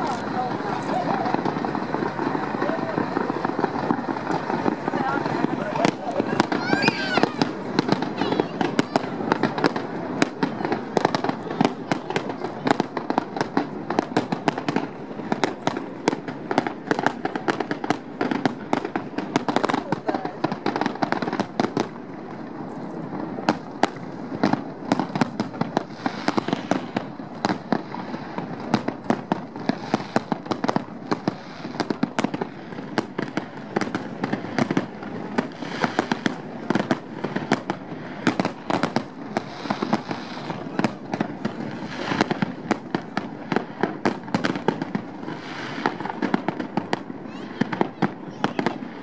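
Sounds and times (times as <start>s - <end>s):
continuous din: 0.0s - 21.8s
firework shells bursting: 0.0s - 49.0s.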